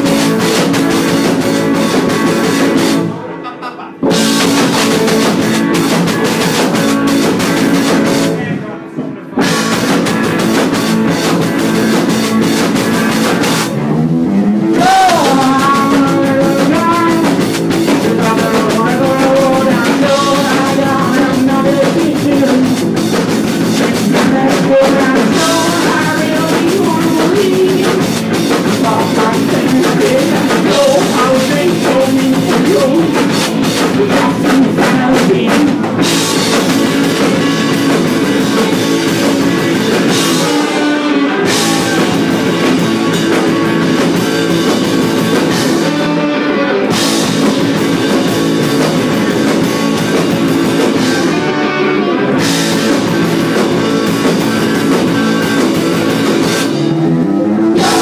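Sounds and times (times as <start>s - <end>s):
rock band playing live: 0.0s - 58.0s
person singing: 14.6s - 22.9s, 23.6s - 36.0s, 39.7s - 43.6s, 51.0s - 52.4s, 57.4s - 58.0s.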